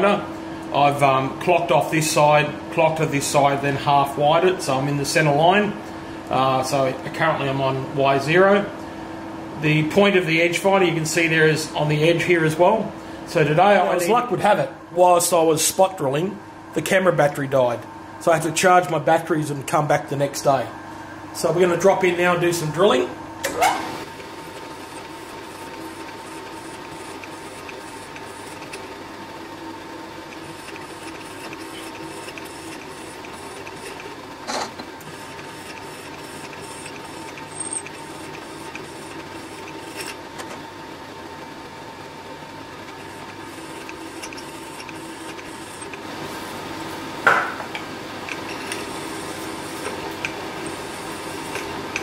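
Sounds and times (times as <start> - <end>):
milling machine drilling metal: 24.5 - 28.9, 30.2 - 40.2, 42.8 - 46.0, 48.3 - 52.0.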